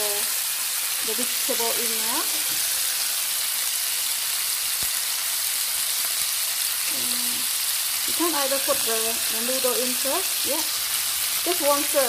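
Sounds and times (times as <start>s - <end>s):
meat sizzling in hot oil: 0.0s - 12.0s.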